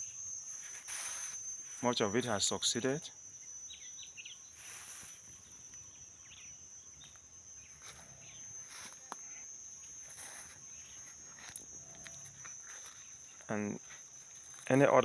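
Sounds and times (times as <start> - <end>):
high-pitched insect trill: 0.0 - 15.0
bird chirps: 1.8 - 8.9
soft rustling footsteps: 7.0 - 15.0.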